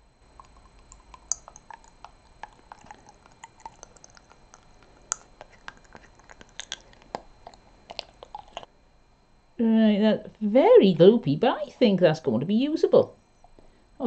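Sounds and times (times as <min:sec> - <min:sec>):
stirring clicks and sticky squelches: 0:00.3 - 0:08.7.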